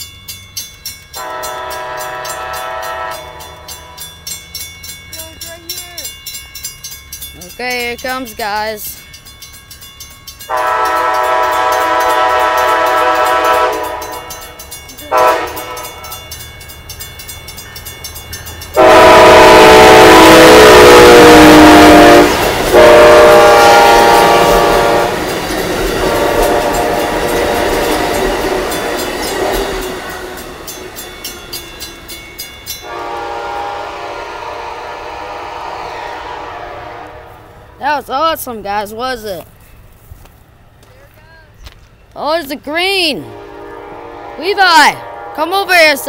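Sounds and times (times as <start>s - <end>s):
passing train cars rumbling: 0.0s - 46.0s
train air horn blasts: 1.2s - 3.5s, 10.5s - 14.5s, 15.1s - 16.2s, 18.8s - 25.2s, 26.0s - 28.6s, 32.8s - 37.6s, 43.2s - 45.6s.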